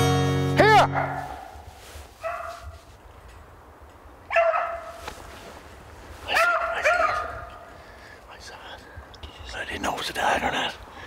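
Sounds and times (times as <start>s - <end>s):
dog baying: 2.2s - 2.8s, 6.3s - 7.7s.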